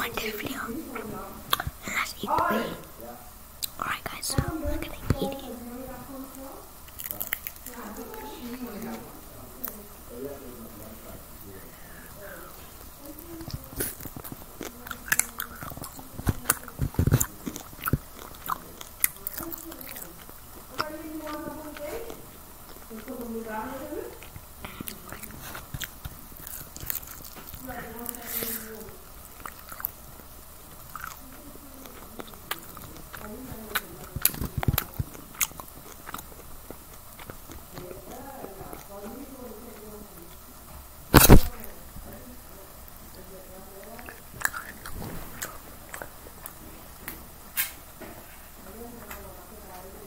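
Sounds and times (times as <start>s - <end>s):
crunchy chewing: 0.0s - 49.9s.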